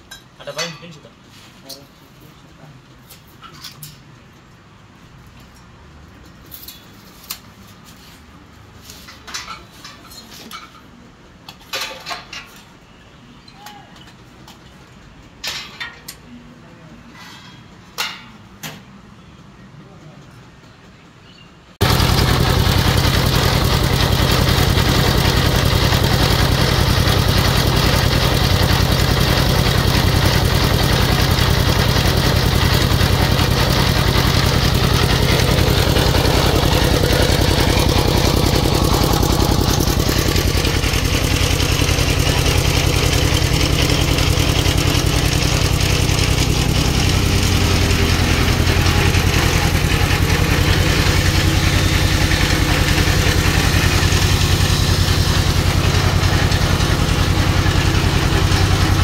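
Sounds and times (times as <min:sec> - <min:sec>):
single-cylinder diesel engine running: 0:21.8 - 0:59.0.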